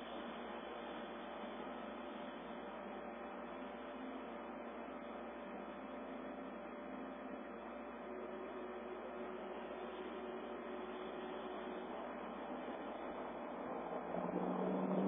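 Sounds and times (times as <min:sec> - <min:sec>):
faint thin steady tone: 0:00.0 - 0:15.0
steady hiss: 0:00.0 - 0:15.0
low hum: 0:09.2 - 0:15.0
lower tone: 0:09.9 - 0:15.0.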